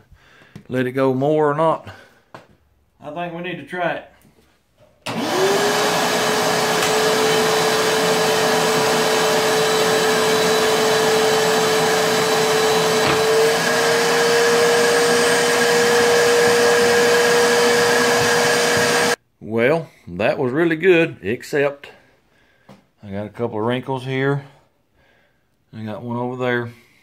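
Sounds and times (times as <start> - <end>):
vacuum motor humming: 5.1 - 19.2.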